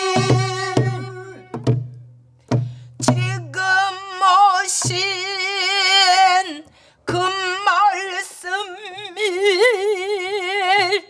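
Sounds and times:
woman singing with vibrato: 0.0 - 1.7, 3.0 - 11.0
low barrel drum stroke: 0.1 - 3.3.

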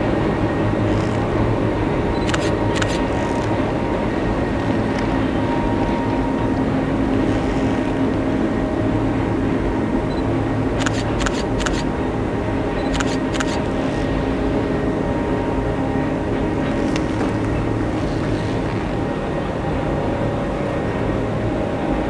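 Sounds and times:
distant train humming: 0.0 - 22.0
sharp clicks: 2.2 - 3.5, 10.8 - 11.8, 12.8 - 13.6.

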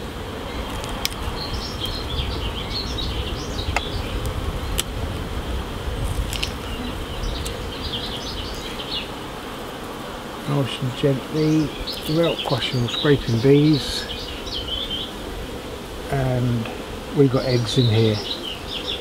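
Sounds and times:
honeybees humming: 0.0 - 19.0
hive tool clicks: 0.6 - 2.0, 6.1 - 6.8.

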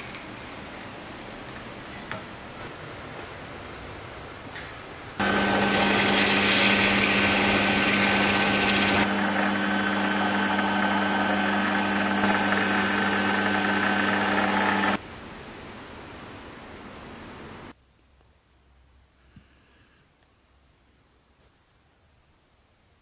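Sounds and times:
abrasive pad hissing on wood: 5.2 - 15.0
lathe motor hum with whine: 5.2 - 15.0.

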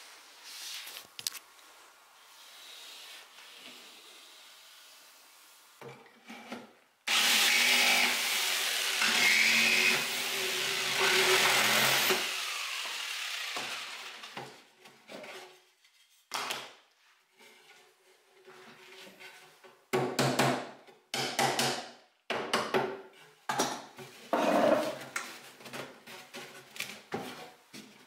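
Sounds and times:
power tool working on wood: 7.1 - 14.4.

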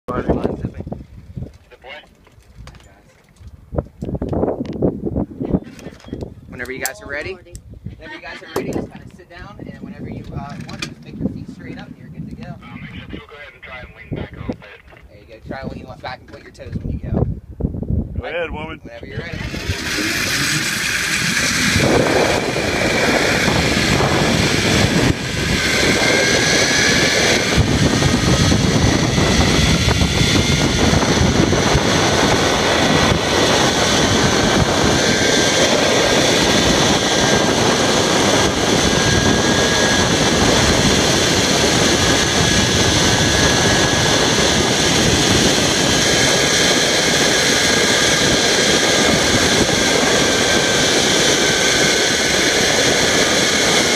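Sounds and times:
wind rushing on microphone: 0.1 - 53.9
zip line trolley whirring: 19.2 - 53.9.

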